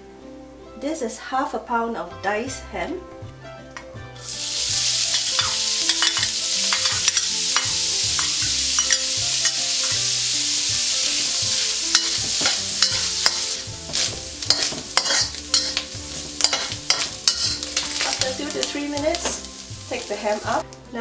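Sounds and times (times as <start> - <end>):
metal spatula scraping wok: 4.2 - 20.6
ham sizzling in hot oil: 4.2 - 20.7.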